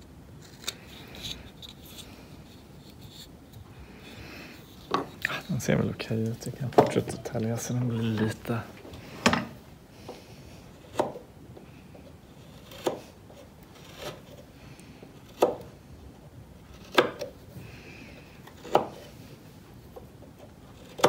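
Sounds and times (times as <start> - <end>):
knife slicing wood: 12.5 - 13.2, 13.8 - 14.4, 16.7 - 17.3, 18.5 - 19.1.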